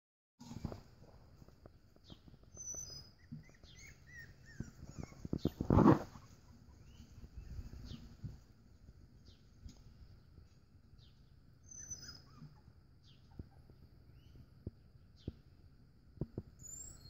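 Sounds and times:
birds chirping: 2.0 - 8.4, 11.0 - 15.5, 16.5 - 17.0
puppies whimpering and squeaking: 2.1 - 8.2, 11.6 - 14.4, 16.6 - 17.0.

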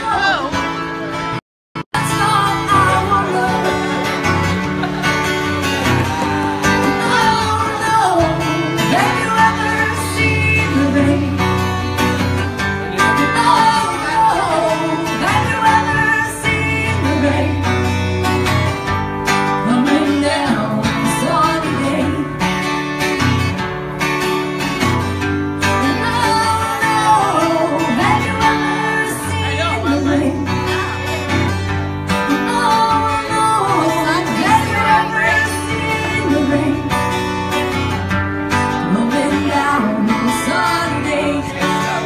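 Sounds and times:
guitar playing: 0.0 - 42.0
person singing: 2.0 - 12.1, 12.9 - 17.9, 25.8 - 31.2, 32.1 - 37.4, 38.6 - 42.0.

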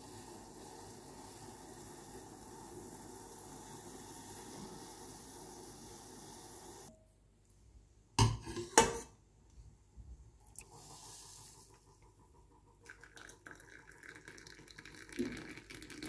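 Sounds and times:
liquid boiling hard in a saucepan: 0.0 - 6.9, 10.6 - 16.0.

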